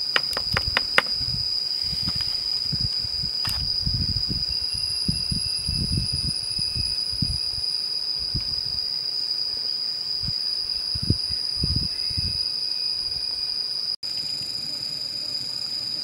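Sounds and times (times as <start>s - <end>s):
insects droning: 0.0s - 16.0s.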